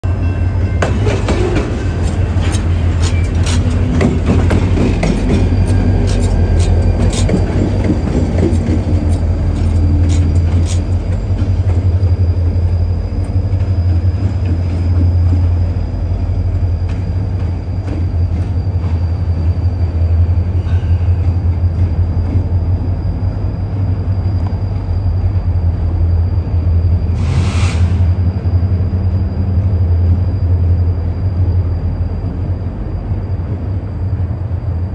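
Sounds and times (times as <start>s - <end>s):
diesel locomotive engine drone: 0.0s - 34.9s
train wheels clicking over rail joints: 0.8s - 23.8s.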